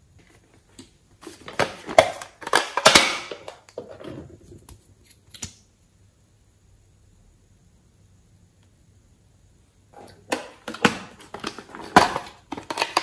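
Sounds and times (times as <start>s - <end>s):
plastic packaging rustling: 10.0s - 13.0s.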